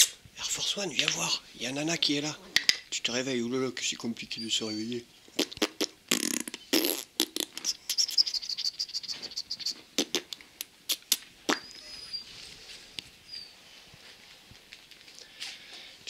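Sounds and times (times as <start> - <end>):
puppy squeaks: 4.3 - 5.0, 7.5 - 9.9, 11.5 - 12.3, 13.3 - 13.6
puppy whining: 4.3 - 5.1, 7.6 - 9.9, 11.5 - 12.6, 13.2 - 13.6.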